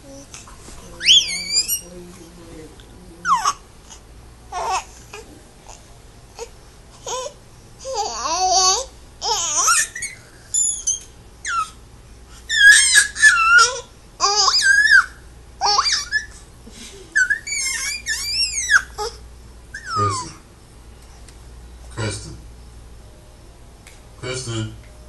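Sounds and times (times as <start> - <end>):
baby squealing and babbling: 1.0 - 1.9, 3.2 - 3.6, 4.6 - 5.2, 7.9 - 11.8, 12.5 - 16.4, 17.2 - 19.2, 19.8 - 20.4.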